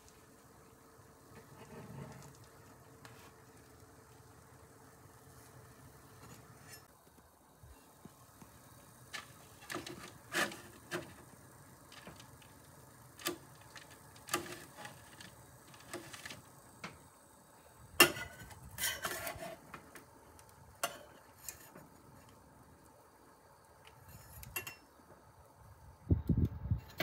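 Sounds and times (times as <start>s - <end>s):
metal spatula scraping baking tray: 1.4s - 2.3s, 6.2s - 6.9s, 9.2s - 11.2s, 18.0s - 19.7s, 20.8s - 21.9s.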